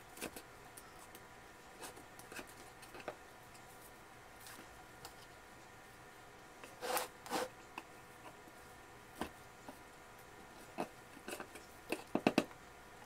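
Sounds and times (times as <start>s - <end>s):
trowel scraping soil: 6.8s - 7.5s.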